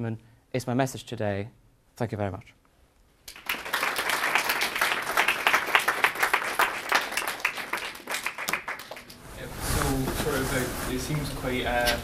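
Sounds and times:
audience applauding: 0:03.3 - 0:09.2.

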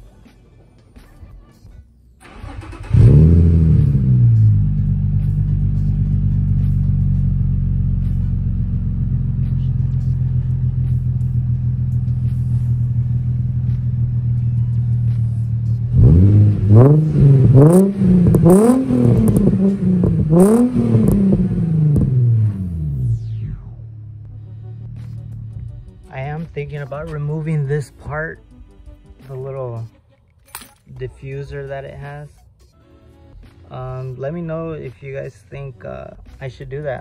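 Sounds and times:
car engine idling and revving: 0:02.2 - 0:27.8.

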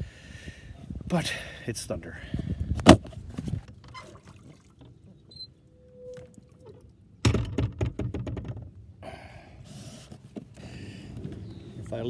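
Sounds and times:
boarding ladder rattling: 0:07.2 - 0:08.8.

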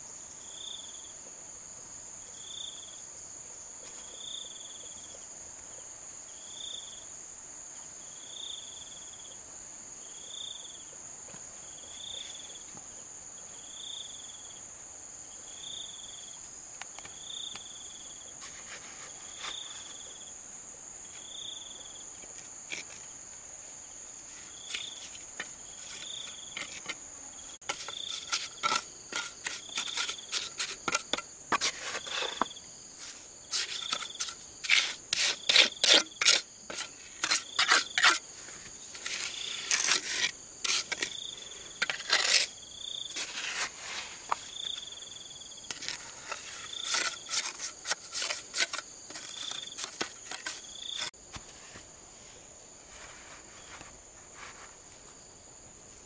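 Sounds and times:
trowel knocking and scraping mortar: 0:22.3 - 0:23.1, 0:24.6 - 0:27.0, 0:27.6 - 0:41.2, 0:41.8 - 0:42.5, 0:45.6 - 0:51.4.

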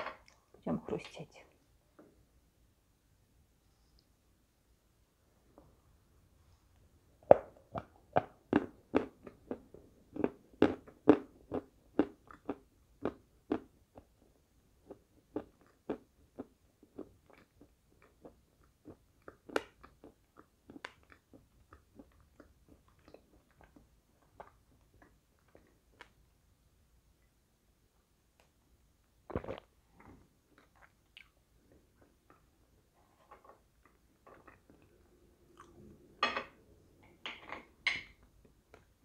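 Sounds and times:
meringue crunching and chewing: 0:07.7 - 0:26.2.

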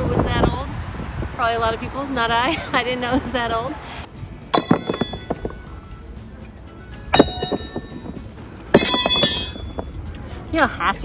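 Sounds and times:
horseshoes clanking on metal stake: 0:04.5 - 0:05.6, 0:07.1 - 0:10.0.

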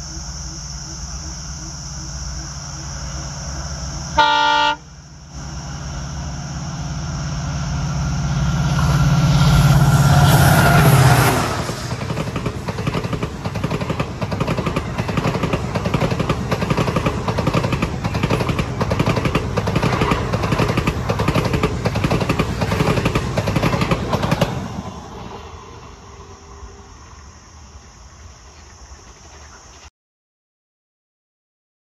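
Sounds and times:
diesel locomotive engine: 0:00.0 - 0:29.9
train wheels clattering on rails: 0:08.4 - 0:25.4.

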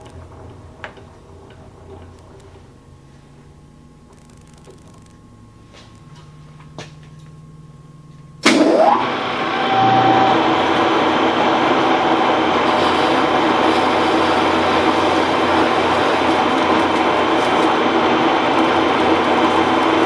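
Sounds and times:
metal lathe running: 0:08.4 - 0:20.0.

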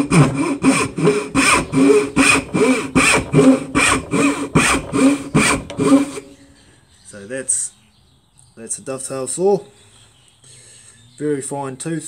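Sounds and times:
backsaw cutting wood: 0:00.0 - 0:06.4.

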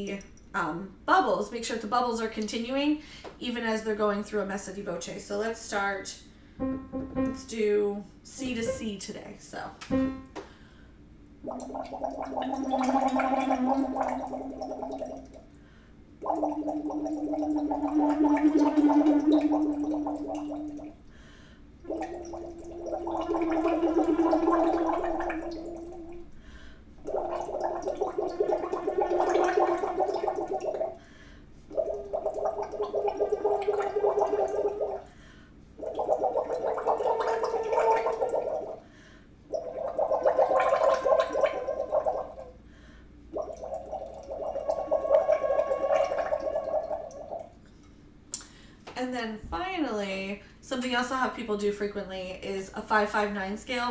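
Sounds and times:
water bubbling through straw: 0:11.4 - 0:15.5, 0:16.2 - 0:21.1, 0:21.9 - 0:26.3, 0:27.0 - 0:31.0, 0:31.7 - 0:35.1, 0:35.8 - 0:38.8, 0:39.5 - 0:42.6, 0:43.3 - 0:47.6
woman singing through a straw: 0:17.7 - 0:20.5.

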